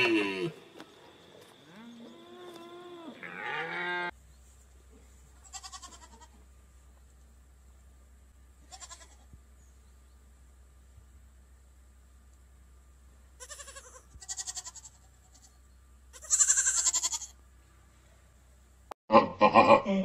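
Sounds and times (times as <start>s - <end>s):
goat bleats: 1.8s - 4.1s, 5.4s - 6.4s, 8.6s - 9.3s, 13.4s - 17.4s
drawn-out animal call: 5.4s - 6.4s, 8.6s - 9.2s, 13.4s - 17.4s.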